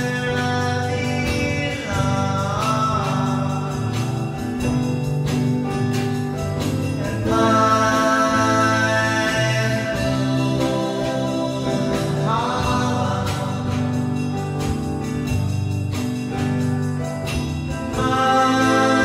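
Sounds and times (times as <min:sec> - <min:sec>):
person singing: 0:00.0 - 0:05.5, 0:06.7 - 0:14.7, 0:17.6 - 0:19.0.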